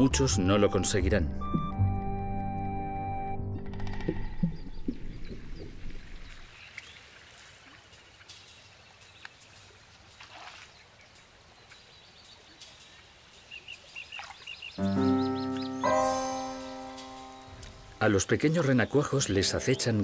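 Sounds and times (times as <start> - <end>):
distant small bird calls: 3.7 - 20.0
soft steady outdoor hiss: 6.2 - 20.0
high chirps: 14.8 - 18.0.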